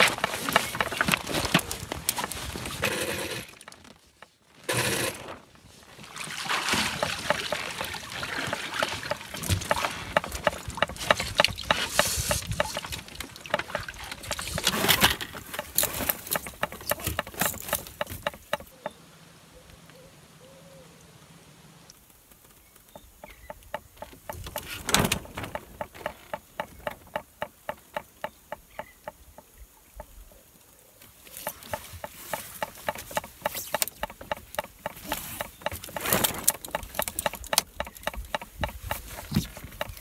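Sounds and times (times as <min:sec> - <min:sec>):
rigging rattling: 0:00.0 - 0:05.4, 0:06.8 - 0:18.7, 0:23.5 - 0:28.3, 0:31.4 - 0:40.0.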